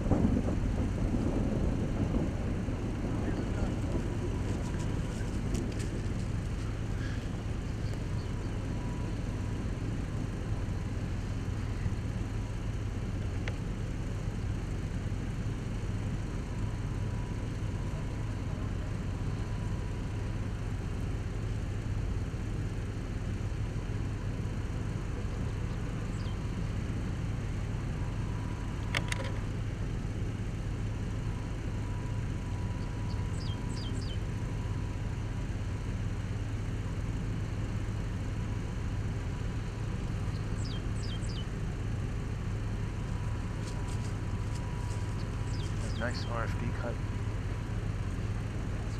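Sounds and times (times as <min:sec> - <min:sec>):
vehicle engine idling: 0:00.0 - 0:48.9.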